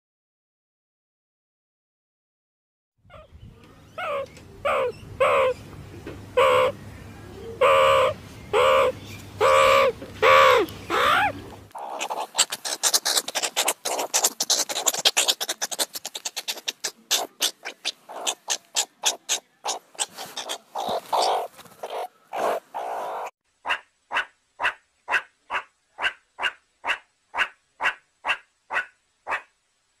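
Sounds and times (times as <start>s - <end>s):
meerkats calling: 3.1s - 5.6s, 6.3s - 6.8s, 7.5s - 29.5s
fast clicking chatter: 12.0s - 21.9s.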